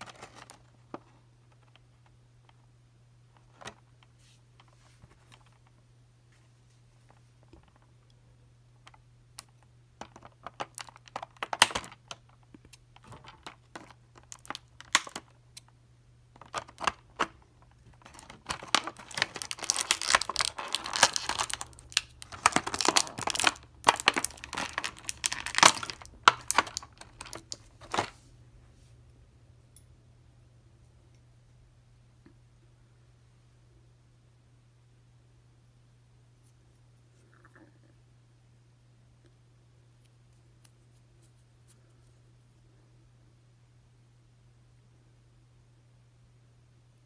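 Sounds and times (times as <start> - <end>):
plastic packaging crinkling: 13.0 - 15.4, 16.4 - 28.2.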